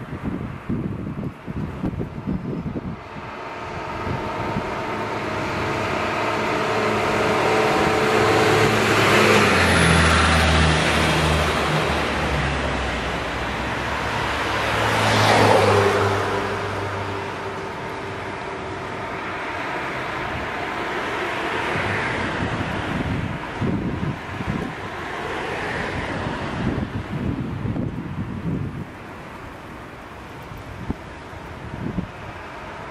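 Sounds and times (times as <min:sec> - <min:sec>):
road traffic rushing: 0:00.0 - 0:32.9
vehicle passing by: 0:02.6 - 0:28.8.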